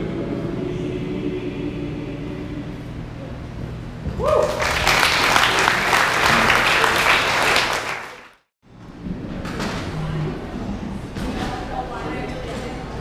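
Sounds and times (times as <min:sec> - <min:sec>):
person whooping: 0:04.2 - 0:04.9
people clapping and cheering: 0:04.2 - 0:08.5.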